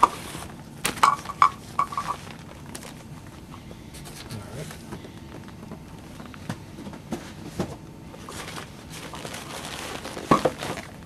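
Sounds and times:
plastic bag rustling: 0.0s - 3.4s, 8.1s - 11.0s.

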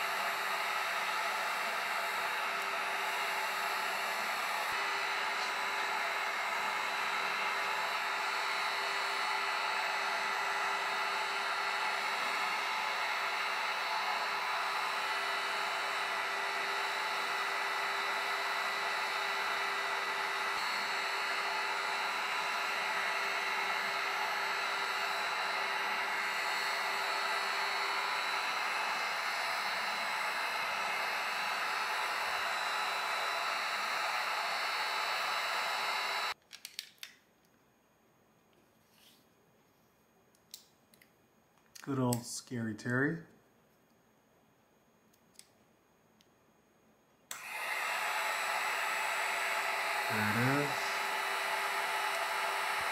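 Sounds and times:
heat gun blowing hiss: 0.0s - 36.4s, 47.3s - 52.9s.

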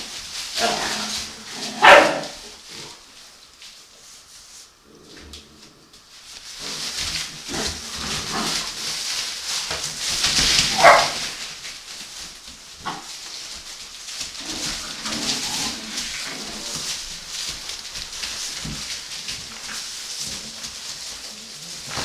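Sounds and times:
puppy barking: 1.8s - 2.4s, 10.7s - 11.2s
paper rustling and scuffling: 6.0s - 22.0s.

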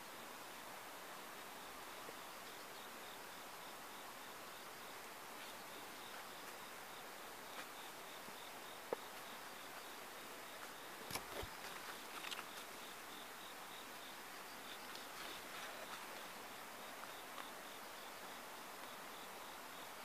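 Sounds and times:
insect chirping: 0.0s - 20.0s
low hiss: 0.0s - 20.0s
light clicks and rustles: 10.6s - 12.8s.

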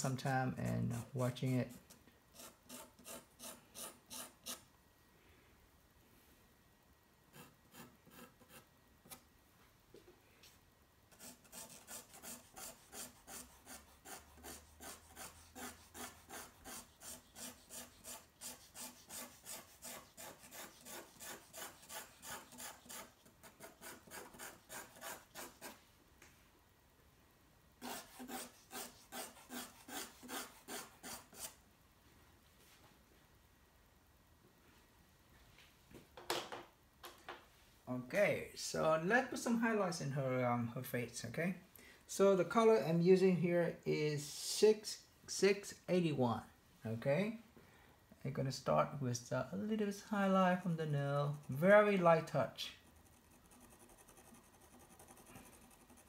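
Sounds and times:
pencil scratching on paper: 0.7s - 4.6s, 7.3s - 9.2s, 11.1s - 25.8s, 27.8s - 31.6s, 52.7s - 56.0s.

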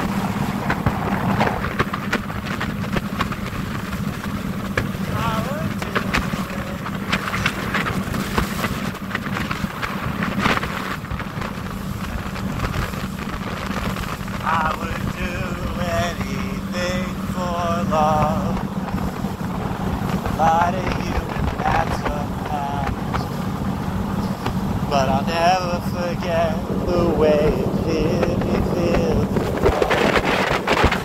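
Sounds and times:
motorboat engine humming: 0.0s - 31.0s
water rushing along hull: 0.0s - 31.0s
wind buffeting microphone: 0.0s - 31.0s.

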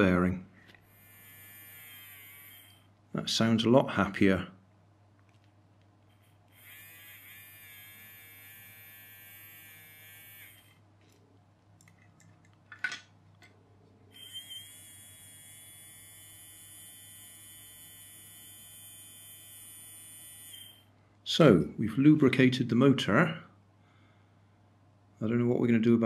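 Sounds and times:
toy motor whining: 0.8s - 2.9s, 6.1s - 10.8s, 14.1s - 20.9s.

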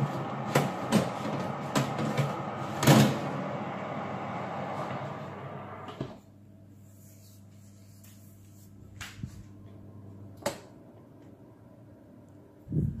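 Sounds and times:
oven door shutting: 0.0s - 6.2s
oven humming: 0.0s - 6.7s.

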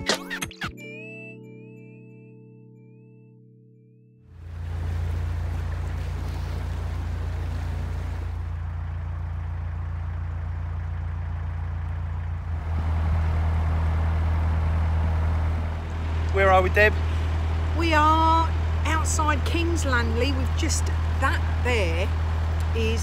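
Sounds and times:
boat engine chugging: 4.4s - 23.0s.

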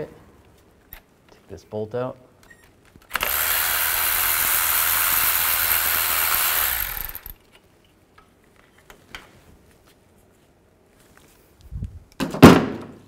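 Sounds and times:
power tool whirring: 3.0s - 7.4s.

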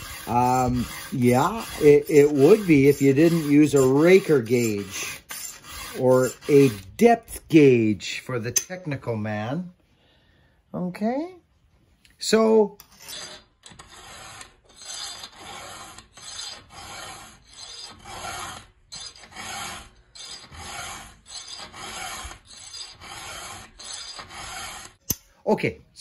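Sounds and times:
file rasping on saw chain: 0.0s - 7.4s, 12.8s - 25.1s.

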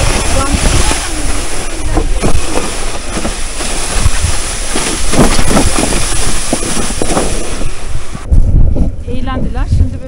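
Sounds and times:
crunching footsteps in snow: 0.0s - 8.0s
sled scraping over snow: 0.0s - 8.3s.

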